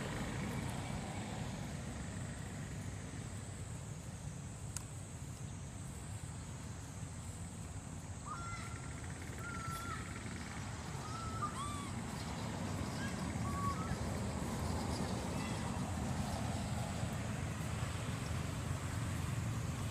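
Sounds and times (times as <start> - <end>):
monkey cooing calls: 8.2 - 14.1.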